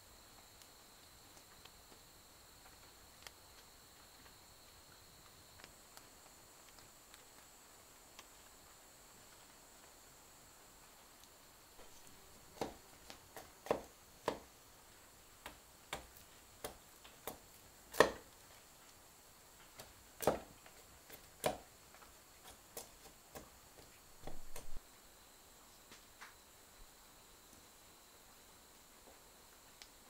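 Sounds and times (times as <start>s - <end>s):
knife tapping on bamboo: 11.8s - 14.5s, 15.4s - 18.3s, 19.6s - 21.7s, 22.4s - 24.8s.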